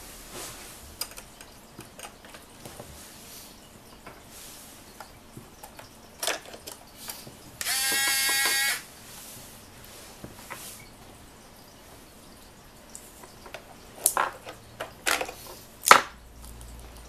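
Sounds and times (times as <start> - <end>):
toy door clicking shut: 7.6 - 8.8
electronic buzz: 7.6 - 8.9.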